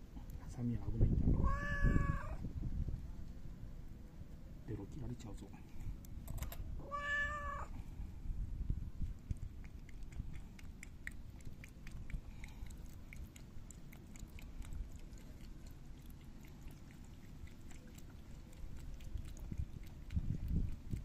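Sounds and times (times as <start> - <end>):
cat lapping milk: 8.9 - 21.0.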